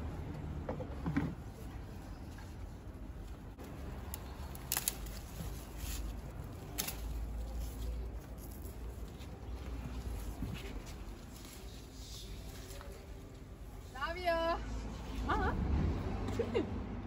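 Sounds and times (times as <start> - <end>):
leaves and vine rustling: 2.1 - 14.0
scissors snipping stem: 4.0 - 6.1.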